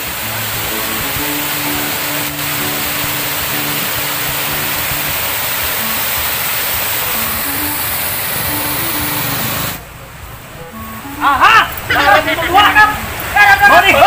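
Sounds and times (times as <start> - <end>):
water gushing from culvert: 0.0 - 9.8
background music held notes: 0.0 - 14.0.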